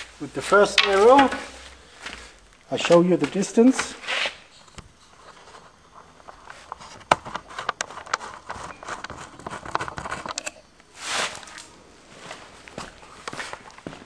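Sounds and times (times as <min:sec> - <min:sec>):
camera handling clicks and rustles: 0:06.4 - 0:10.6.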